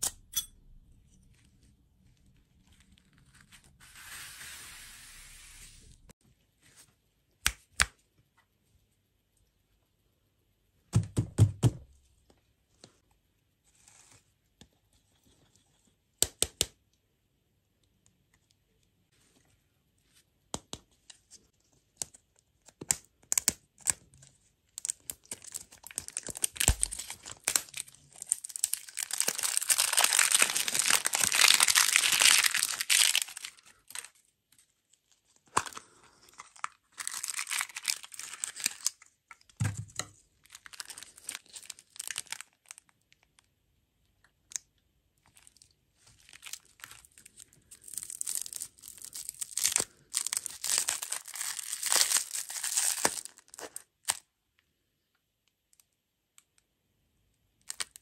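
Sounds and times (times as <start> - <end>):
plastic wrapper crinkling: 24.7 - 34.2, 35.1 - 39.6, 40.4 - 43.3, 45.2 - 54.2.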